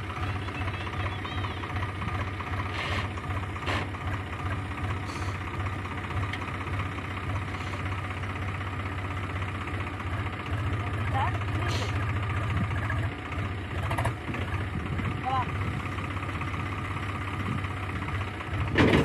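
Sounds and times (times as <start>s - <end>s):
tractor diesel engine idling: 0.0s - 19.0s.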